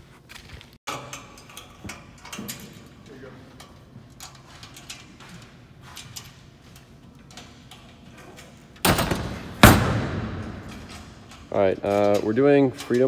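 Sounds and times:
stage gear knocks and clicks: 8.8 - 13.0
loud echoing bangs: 8.9 - 10.8.

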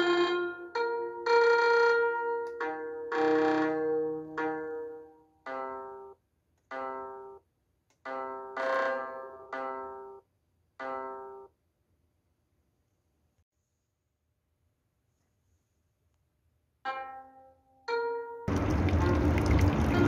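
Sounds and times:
instrumental background music: 0.0 - 7.4.

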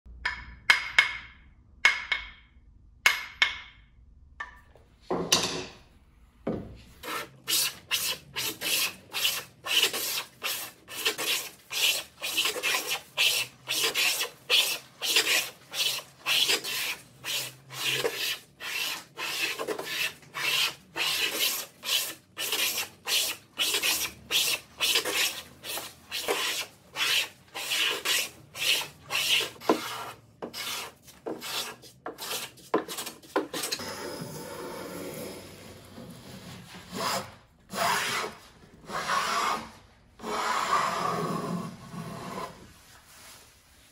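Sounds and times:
hand plane shaving wood: 7.0 - 35.5.

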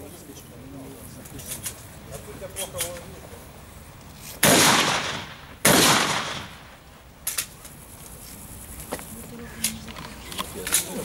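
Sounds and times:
echoing gunshots: 4.4 - 6.8.

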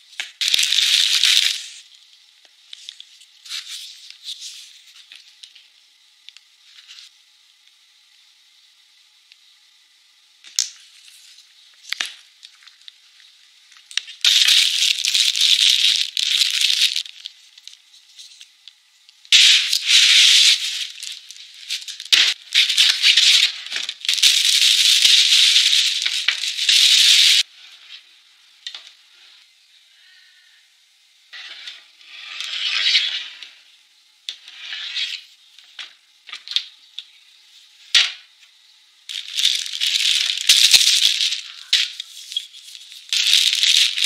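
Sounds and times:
plastic wrap crinkling: 0.2 - 1.9, 10.5 - 18.5, 19.3 - 27.5, 39.1 - 44.0.

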